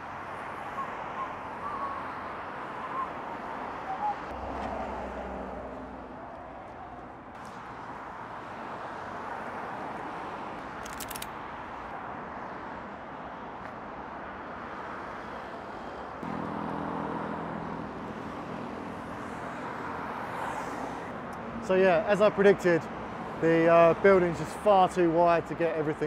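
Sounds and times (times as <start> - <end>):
traffic passing on busy road: 0.0 - 26.0
rattle of clicks: 10.8 - 11.3
vehicle engine hum: 15.8 - 21.7.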